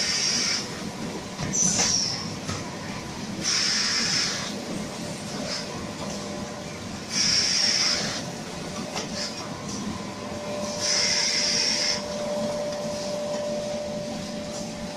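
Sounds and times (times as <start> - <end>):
thin steady whine: 0.0 - 14.9
loud hiss: 3.4 - 4.6, 10.8 - 12.1.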